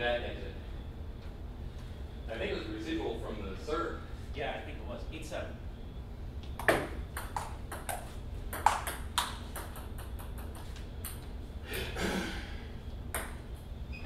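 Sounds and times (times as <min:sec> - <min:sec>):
table tennis ball clicking: 0:06.6 - 0:11.3.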